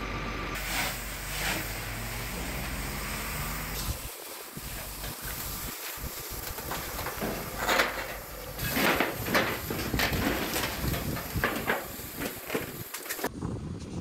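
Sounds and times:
steady outdoor hiss: 0.0 - 13.3
crackles and clatters: 3.8 - 13.9.

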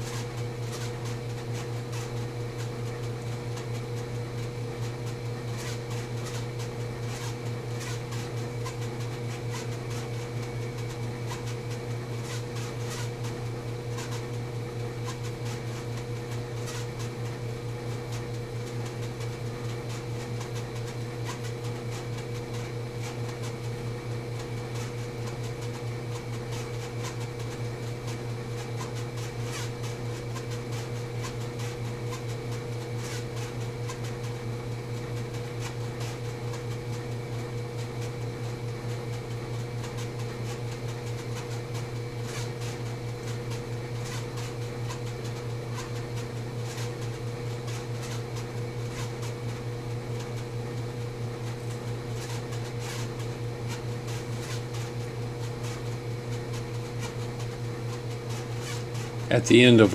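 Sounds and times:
mechanical hum: 0.0 - 59.9.

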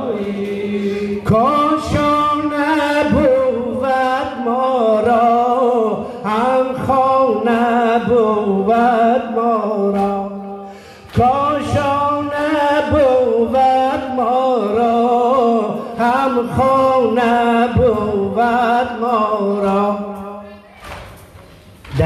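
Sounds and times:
man singing a lament: 0.0 - 20.5.

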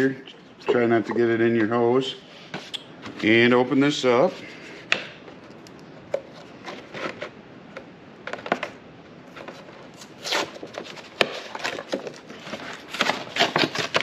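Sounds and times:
plastic packaging crackling: 10.2 - 14.0.

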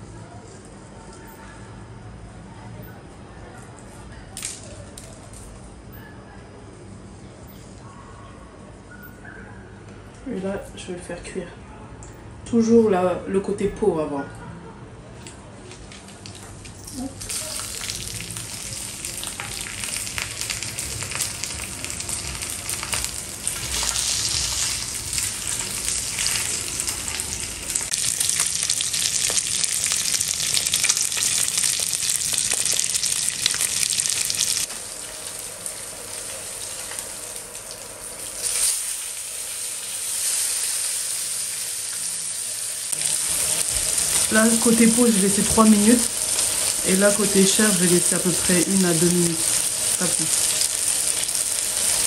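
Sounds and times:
fish sizzling in pan: 17.0 - 52.0.

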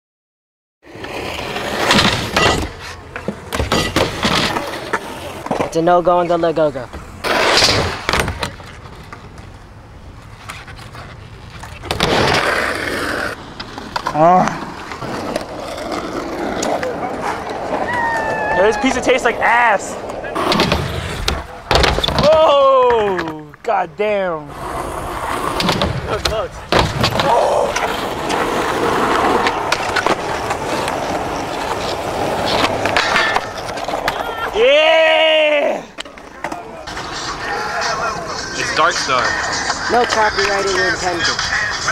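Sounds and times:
skateboard wheels rolling on ramp: 0.8 - 41.9
skateboard clacking: 24.8 - 34.7, 35.9 - 41.9.

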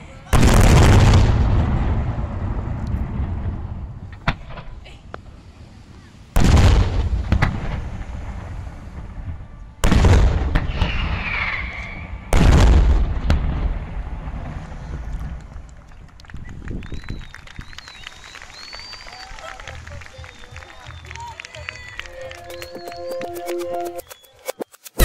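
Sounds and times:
firework booms with rumble: 0.3 - 4.8, 6.3 - 11.2, 12.0 - 15.4
small firework cracks: 6.4 - 9.2, 9.8 - 22.8.

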